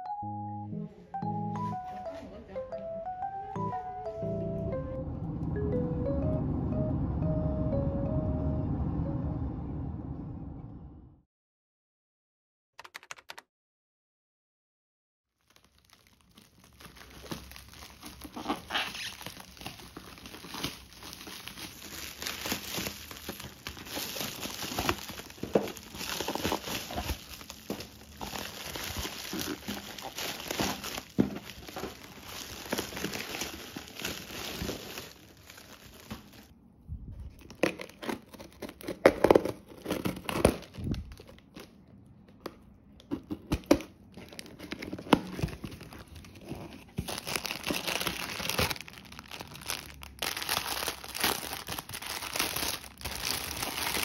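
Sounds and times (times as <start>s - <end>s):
plastic and bubble wrap crinkling: 15.4s - 36.5s, 37.2s - 41.9s, 43.0s - 54.0s
tape ripping: 15.5s - 36.4s, 37.4s - 41.7s
scissors cutting packing tape: 37.4s - 40.7s.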